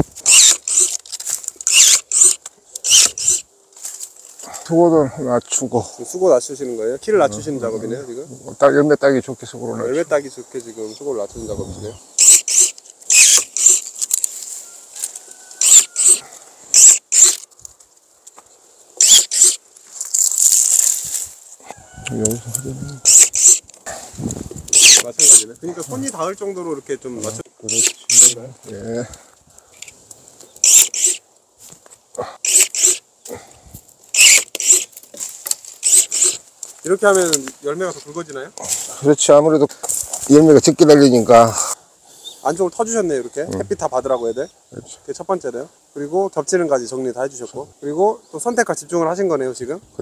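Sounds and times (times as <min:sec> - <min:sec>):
pruning saw rasping through branch: 0:00.0 - 0:03.5, 0:12.2 - 0:17.6, 0:19.0 - 0:21.2, 0:22.0 - 0:23.9, 0:24.7 - 0:26.3, 0:27.2 - 0:28.4, 0:30.6 - 0:31.2, 0:32.4 - 0:33.4, 0:34.1 - 0:37.5.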